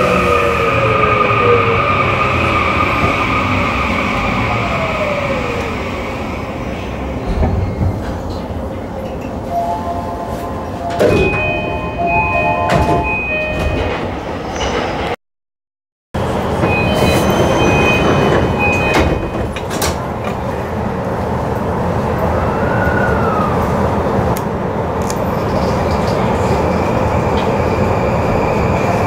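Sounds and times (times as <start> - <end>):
short beeping tones: 9.5 - 14.0.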